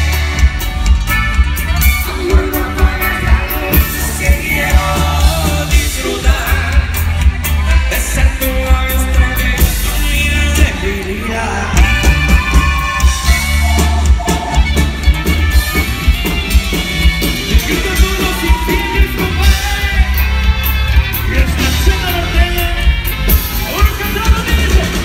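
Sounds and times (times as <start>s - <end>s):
live band music: 0.0s - 25.0s
person singing: 1.7s - 13.9s.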